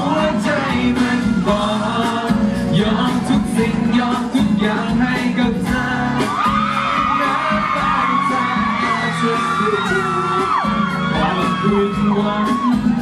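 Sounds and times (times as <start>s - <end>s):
pop ballad playing: 0.0s - 13.0s
audience screaming and whooping: 0.3s - 2.1s, 5.6s - 13.0s.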